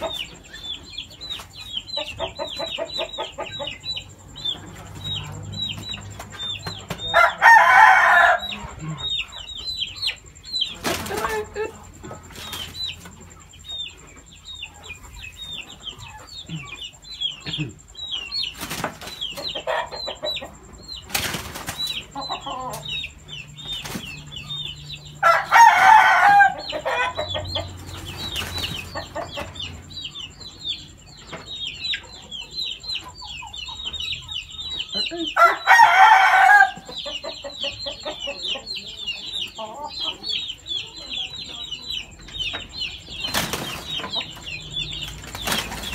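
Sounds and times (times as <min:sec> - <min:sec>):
loud chicken calls: 0:00.0 - 0:41.1
chickens chirping: 0:00.0 - 0:45.9
wings flapping: 0:21.1 - 0:22.0, 0:43.3 - 0:43.9, 0:45.1 - 0:45.9.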